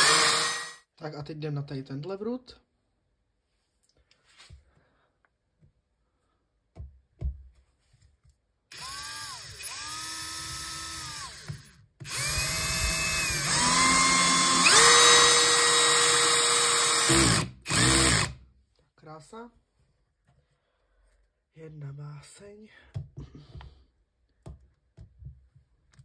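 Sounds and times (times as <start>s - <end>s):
cordless drill motor whine: 0.0s - 0.8s, 8.7s - 18.3s.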